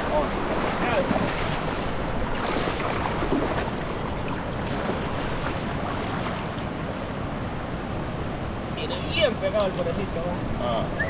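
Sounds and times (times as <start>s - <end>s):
surf splashing around legs: 0.0s - 7.1s.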